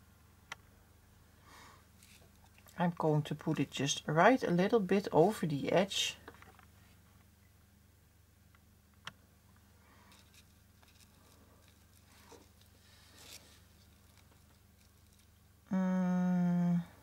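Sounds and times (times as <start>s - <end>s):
ribbon and fabric rustling: 10.0s - 15.4s
person humming: 15.7s - 17.0s.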